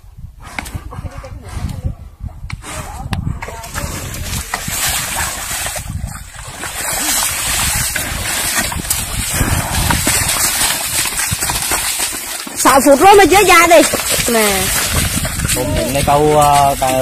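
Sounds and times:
wind buffeting microphone: 0:00.0 - 0:17.0
water splashing: 0:03.5 - 0:17.0.

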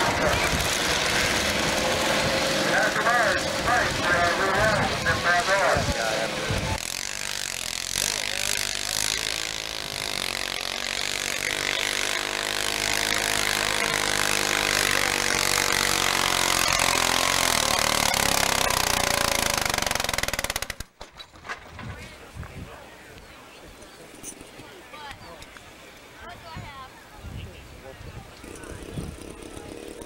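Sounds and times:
tractor engine running hard: 0:00.0 - 0:20.8.

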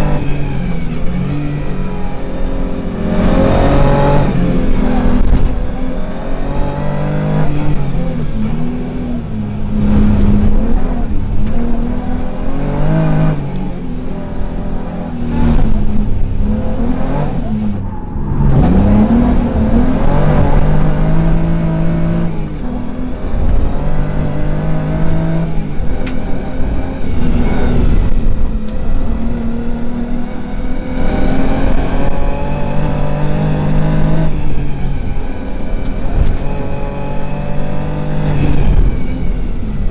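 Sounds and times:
rally car engine revving: 0:00.0 - 0:39.9.

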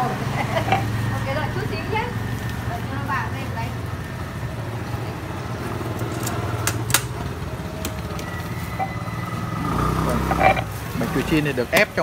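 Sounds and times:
motorbike engine idling: 0:00.0 - 0:12.0.

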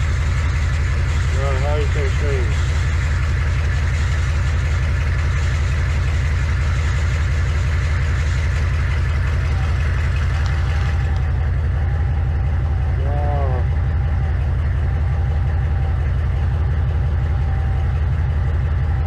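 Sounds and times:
engine idling: 0:00.0 - 0:19.0.

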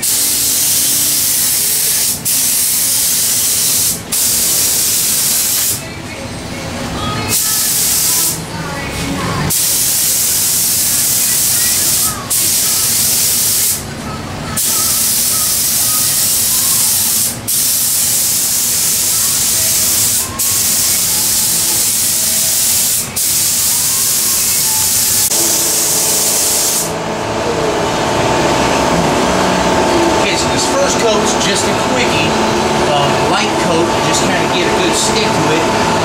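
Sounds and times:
spray gun hissing: 0:00.0 - 0:05.8, 0:07.3 - 0:08.4, 0:09.5 - 0:13.8, 0:14.6 - 0:26.9
steady hum: 0:00.0 - 0:36.0.

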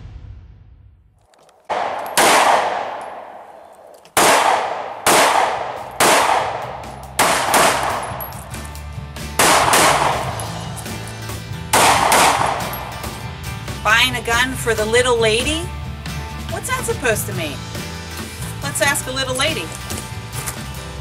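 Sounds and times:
handgun shots: 0:01.4 - 0:08.7, 0:09.4 - 0:10.9, 0:11.7 - 0:13.1
rock music: 0:05.8 - 0:21.0.

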